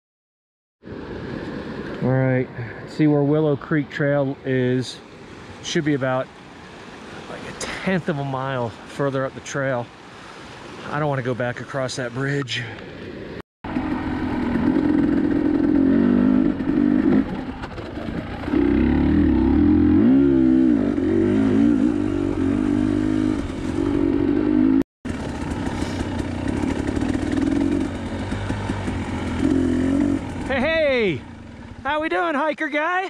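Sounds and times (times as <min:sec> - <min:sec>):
dirt bike engine revving: 0:13.7 - 0:32.0.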